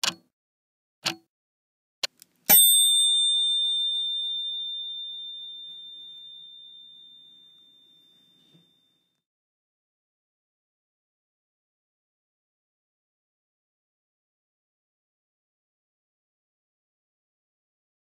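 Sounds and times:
bright bell ding: 2.5 - 9.1.

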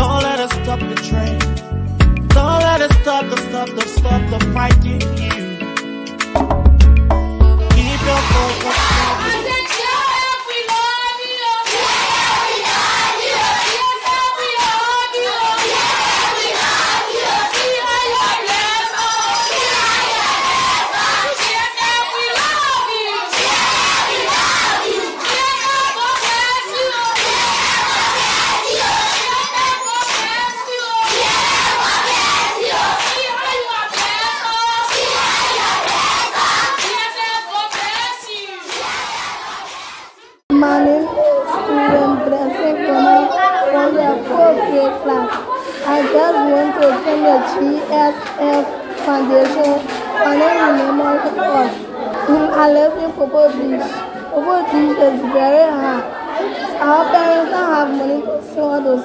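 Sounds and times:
children cheering and chanting: 7.7 - 57.6
hand clapping: 8.1 - 10.0, 33.0 - 33.3, 33.9 - 34.3, 36.7 - 38.1, 48.2 - 50.1.

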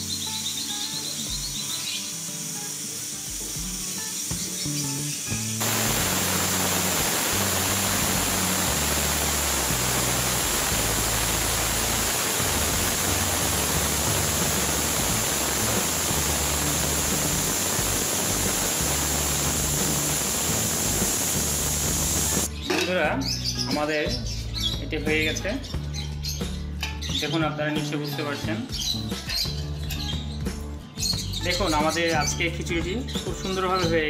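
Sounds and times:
background music: 0.0 - 34.0
pressure cooker hissing steam: 1.6 - 4.7, 5.6 - 22.5.

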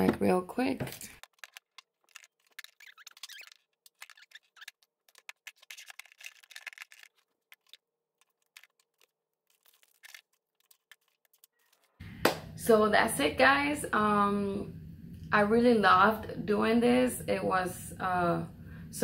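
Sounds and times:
small containers clicking and knocking: 0.8 - 11.9.

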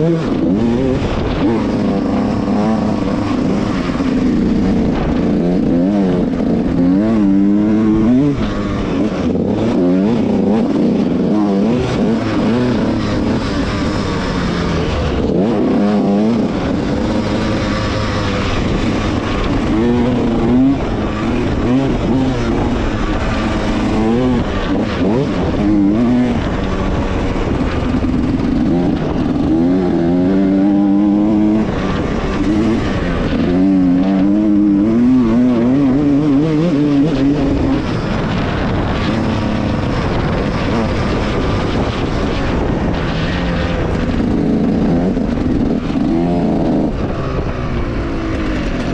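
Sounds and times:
dirt bike engine revving: 0.0 - 48.9.

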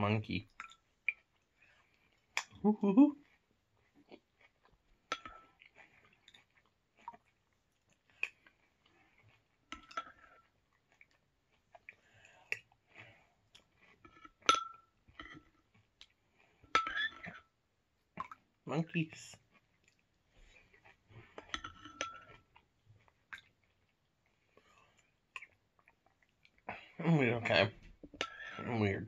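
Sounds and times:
quiet chewing: 0.4 - 18.6, 19.2 - 28.6
spoon clinking against ceramic bowl: 14.5 - 15.5, 16.8 - 17.4, 21.6 - 22.4, 28.2 - 28.6.

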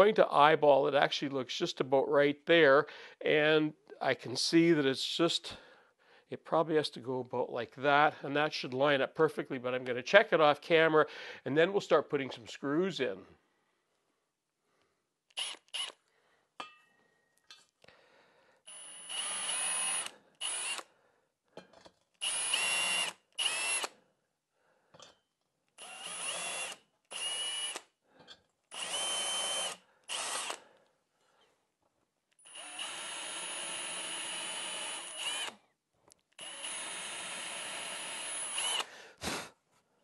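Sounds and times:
cordless drill running: 15.4 - 16.0, 18.7 - 20.9, 22.2 - 24.0, 25.8 - 27.9, 28.7 - 30.6, 32.4 - 35.6, 36.4 - 39.0.

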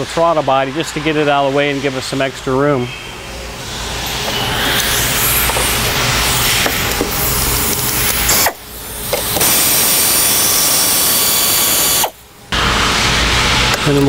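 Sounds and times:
pneumatic ratchet whirring: 3.6 - 12.3.

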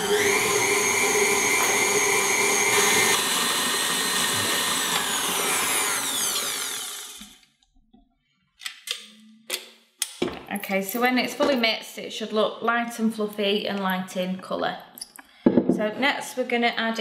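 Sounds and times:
stand mixer motor whine: 0.0 - 7.4.

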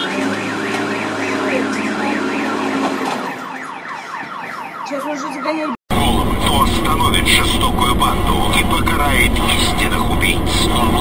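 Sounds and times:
wheel loader engine humming: 0.0 - 3.5, 5.9 - 11.0
car alarm wailing: 0.0 - 11.0.

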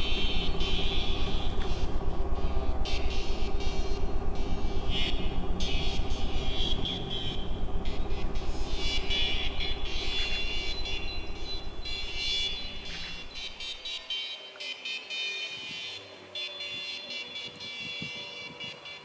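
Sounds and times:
low pulsing rumbling drone: 0.0 - 14.2
wavering high whine: 0.0 - 19.0.

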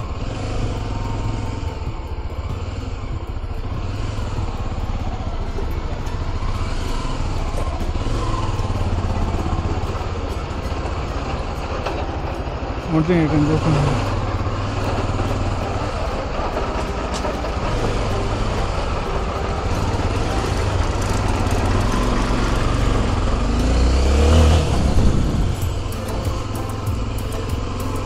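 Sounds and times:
road noise: 0.0 - 28.0
vehicle engine running under load: 0.0 - 28.0
wind noise: 22.3 - 27.1.

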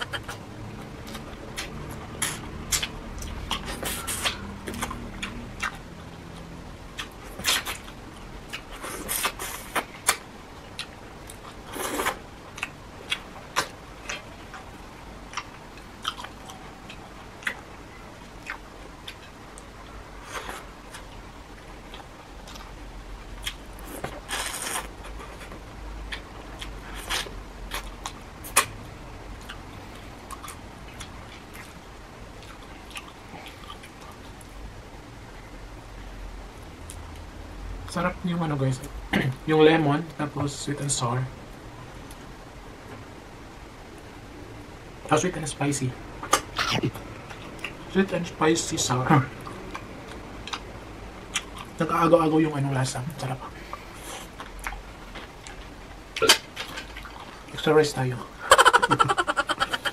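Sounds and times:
chewing with wet mouth smacks: 0.0 - 14.7, 15.3 - 22.7, 29.4 - 31.8, 32.4 - 34.6, 46.2 - 47.9, 49.4 - 50.7, 51.3 - 51.8, 53.6 - 57.5.

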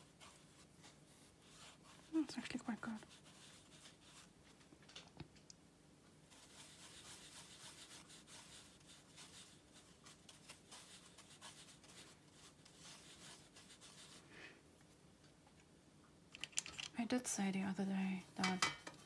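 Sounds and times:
brush scratching on rough paper: 0.0 - 4.6, 6.3 - 14.3.

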